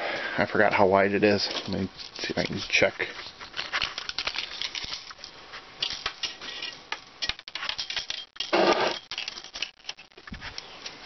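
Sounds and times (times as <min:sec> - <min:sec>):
tool handling clicks and rattles: 0:03.4 - 0:11.0.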